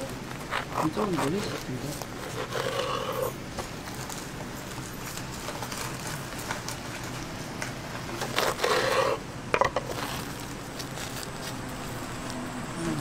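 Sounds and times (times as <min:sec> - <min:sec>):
fried crust crackling and crunching: 0:09.8 - 0:12.4.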